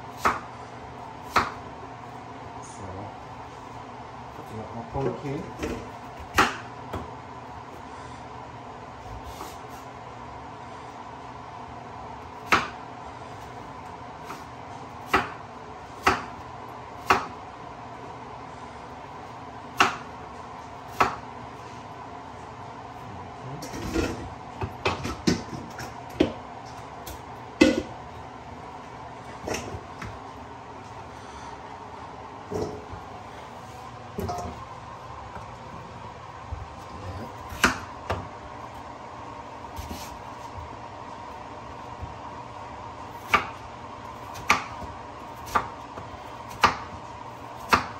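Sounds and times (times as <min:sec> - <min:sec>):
steady background hum: 0:00.0 - 0:47.9
knife chopping on wooden board: 0:00.1 - 0:00.5, 0:01.2 - 0:01.6, 0:05.6 - 0:07.1, 0:12.4 - 0:12.8, 0:14.2 - 0:15.4, 0:16.0 - 0:16.4, 0:17.0 - 0:17.4, 0:19.8 - 0:20.1, 0:20.9 - 0:21.2, 0:23.7 - 0:26.4, 0:27.0 - 0:27.9, 0:37.2 - 0:38.3, 0:43.2 - 0:43.6, 0:44.3 - 0:47.0, 0:47.6 - 0:47.9.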